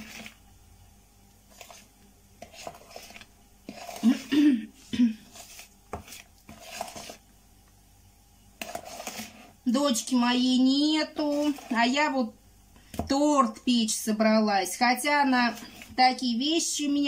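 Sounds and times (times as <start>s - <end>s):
spoon scraping plastic bowl: 0.0s - 0.4s, 1.5s - 7.3s, 8.6s - 12.2s, 15.2s - 16.2s.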